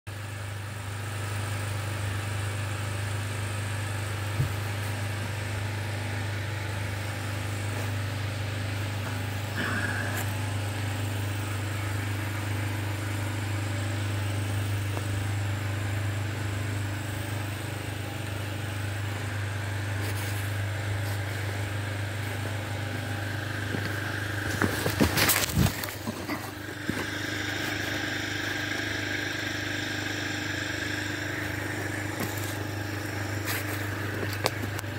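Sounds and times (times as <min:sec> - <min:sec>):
diesel engine idling: 0:06.9 - 0:34.9.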